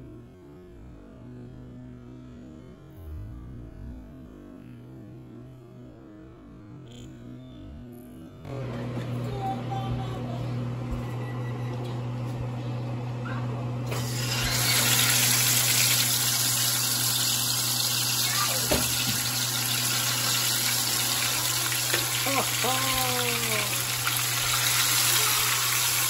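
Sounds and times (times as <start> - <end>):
low hum: 0.0 - 18.3
fish sizzling in hot oil: 13.9 - 26.0.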